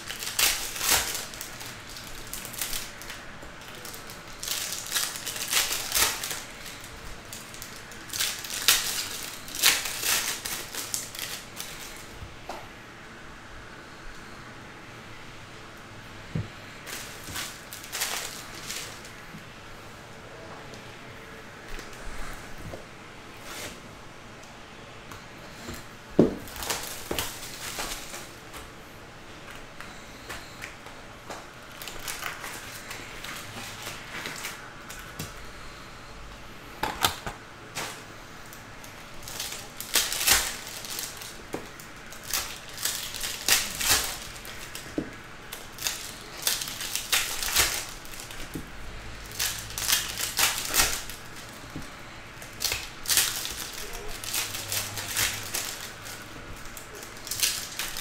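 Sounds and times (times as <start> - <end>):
wrappers crinkling and tearing: 0.0 - 12.2, 16.6 - 19.2, 26.4 - 28.4, 31.6 - 35.5, 37.0 - 58.0.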